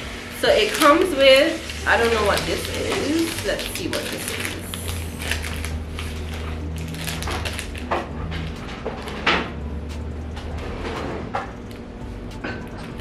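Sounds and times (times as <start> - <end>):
steady low hum: 0.0 - 13.0
paper rustling: 0.4 - 7.8.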